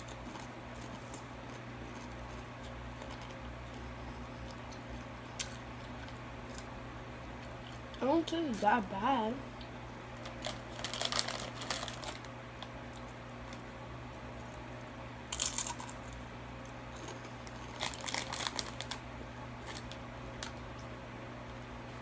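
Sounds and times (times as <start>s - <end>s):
chip bag crinkling: 0.0s - 4.0s, 10.1s - 13.7s, 14.3s - 16.3s, 16.9s - 20.7s
chips crunching: 0.0s - 6.8s, 10.1s - 13.7s, 15.3s - 19.0s, 19.6s - 20.9s.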